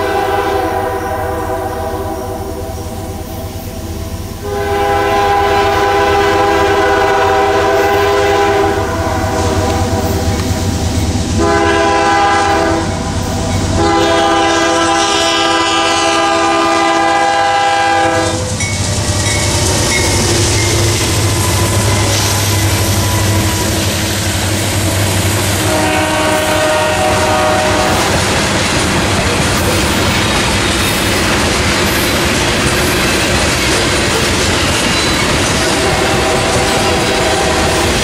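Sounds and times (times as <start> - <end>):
locomotive air horn: 0.0 - 3.2, 4.4 - 10.3, 11.4 - 18.6, 20.7 - 28.2, 35.6 - 38.0
low rumble of train: 0.0 - 38.0.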